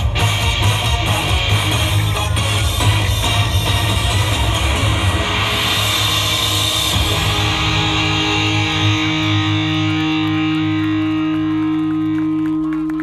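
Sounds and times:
dance music with electric guitar: 0.0s - 13.0s
electric guitar chord ringing: 0.0s - 13.0s.

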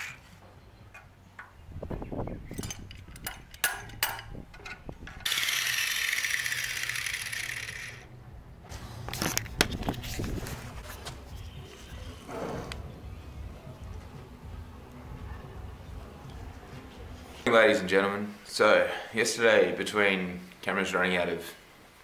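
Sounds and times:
steel parts and tools clanking: 2.4s - 8.0s
angle grinder grinding steel: 5.2s - 8.1s.

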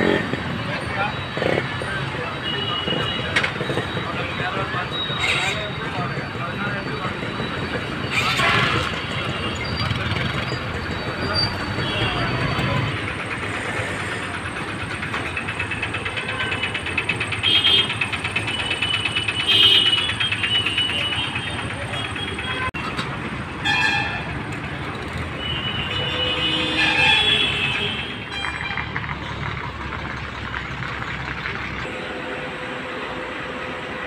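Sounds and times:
bus engines running: 0.0s - 34.0s
vehicle horn toots: 17.4s - 18.1s, 19.3s - 22.8s, 23.6s - 24.3s, 25.4s - 28.8s.

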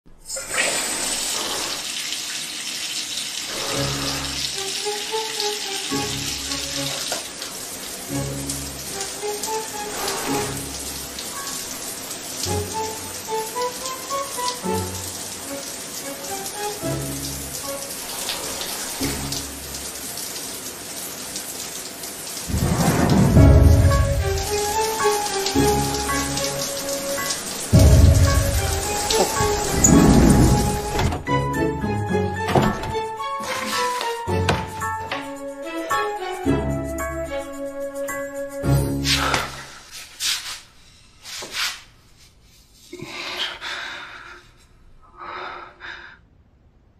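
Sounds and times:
shower spray running: 0.2s - 31.2s, 32.9s - 41.9s
soft music: 3.5s - 20.2s, 22.5s - 39.6s
deep rumble: 22.5s - 24.6s, 27.8s - 31.2s
music with deep bass: 23.4s - 24.8s, 27.8s - 31.6s.

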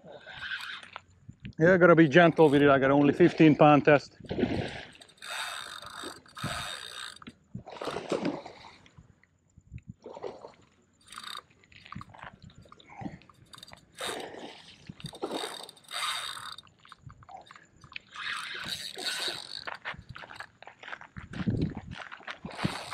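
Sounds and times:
fishing reel cranking: 0.2s - 1.0s, 2.0s - 2.8s, 4.6s - 7.4s, 11.0s - 20.5s, 22.5s - 22.9s
handling noise on rod: 2.1s - 2.8s, 4.3s - 8.4s, 11.0s - 20.5s, 22.5s - 22.9s.

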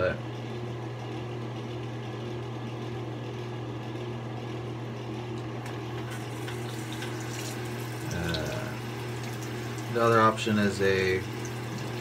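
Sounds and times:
water running from tap: 5.9s - 12.0s.

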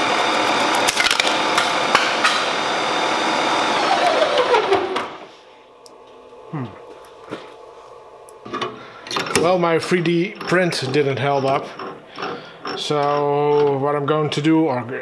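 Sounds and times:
metal lathe running: 0.0s - 5.3s, 9.1s - 13.8s
lathe spinning down with falling whine: 0.0s - 5.4s.

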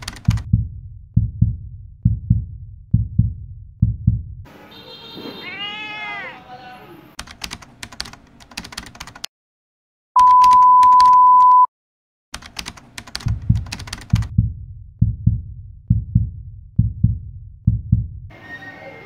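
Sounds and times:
keyboard typing clicks: 0.0s - 0.5s, 7.2s - 9.3s, 10.2s - 11.6s, 12.4s - 14.3s
heartbeat thumps: 0.0s - 4.5s, 13.2s - 18.3s
loud steady beep: 10.2s - 11.7s.

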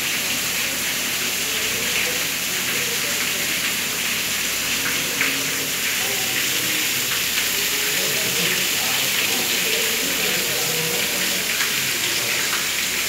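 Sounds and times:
rain hiss: 0.0s - 13.0s
water dripping onto tiled floor: 0.0s - 13.0s
water splashes: 0.0s - 13.0s.

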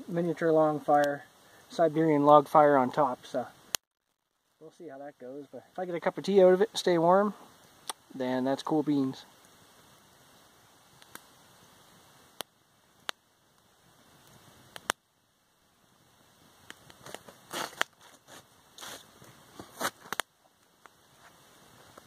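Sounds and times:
campfire crackling: 0.0s - 22.0s
sharp pops of fire: 7.4s - 8.2s, 8.9s - 15.1s, 16.2s - 21.0s
rustling: 16.6s - 22.0s.

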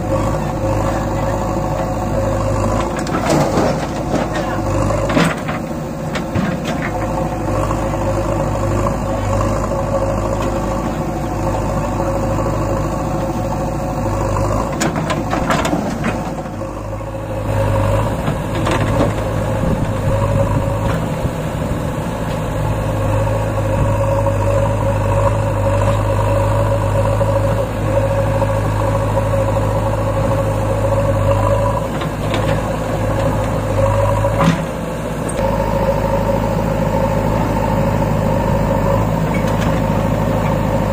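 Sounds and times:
diesel engines running: 0.0s - 40.9s.

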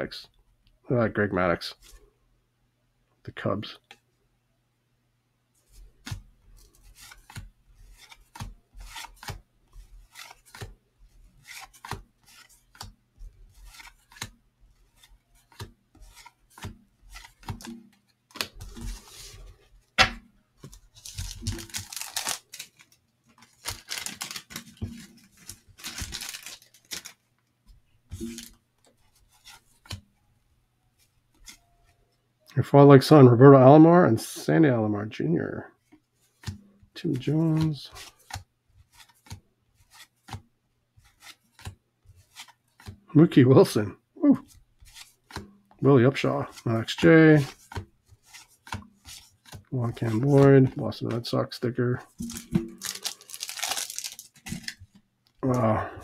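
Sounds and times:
cards rustling and rubbing: 5.6s - 20.0s, 20.6s - 30.1s, 31.0s - 31.7s, 35.8s - 55.8s
cardboard cards snapping: 15.0s - 19.0s, 20.0s - 27.2s, 52.2s - 54.9s.

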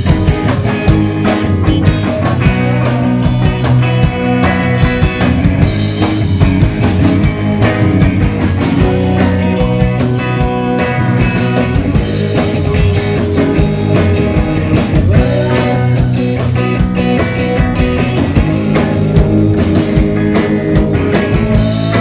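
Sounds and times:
drum kit and cymbals: 0.0s - 22.0s
electric guitar: 0.0s - 22.0s.

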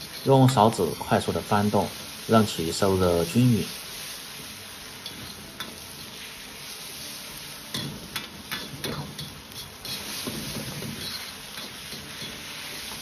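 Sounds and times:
metal spatula scraping a wok: 0.0s - 0.8s, 8.6s - 13.0s
food sizzling in a wok: 0.0s - 13.0s.

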